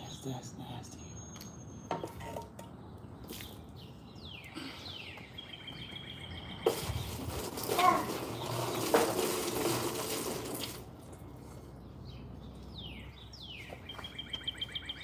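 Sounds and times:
birds chirping: 0:00.0 - 0:09.0, 0:10.5 - 0:15.0
pot sloshing water: 0:06.7 - 0:10.9.

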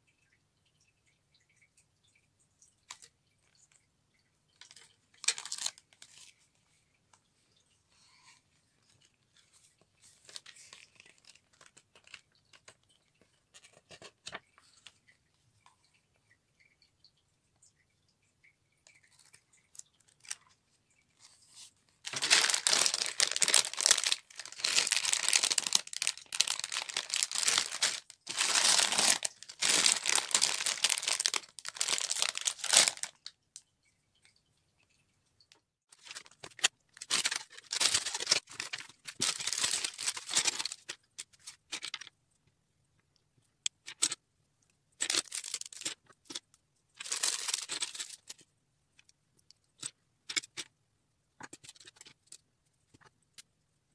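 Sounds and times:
plastic bags crinkling and tearing: 0:04.6 - 0:06.3, 0:22.0 - 0:33.3, 0:35.9 - 0:41.0, 0:45.0 - 0:46.4, 0:47.0 - 0:48.4.

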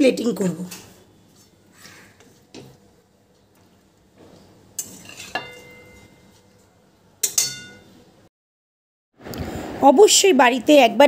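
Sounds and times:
metal spatula scraping in a wok: 0:04.8 - 0:06.5.

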